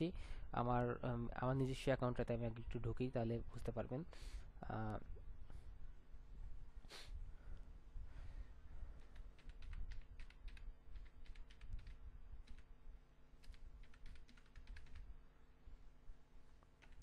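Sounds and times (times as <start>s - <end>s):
faint low hum: 0.0s - 17.0s
typing on a keyboard: 9.1s - 12.7s, 13.4s - 15.1s, 16.8s - 17.0s.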